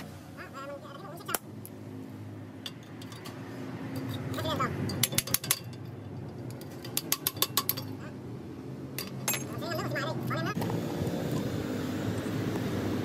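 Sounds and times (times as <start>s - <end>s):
metal tools clinking: 2.6s - 8.0s, 9.0s - 10.0s.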